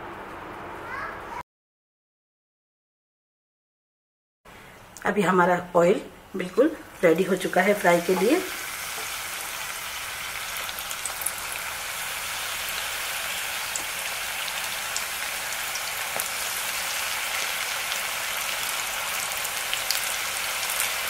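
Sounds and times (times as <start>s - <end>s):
deep-frying sizzle with pops: 6.8s - 21.0s.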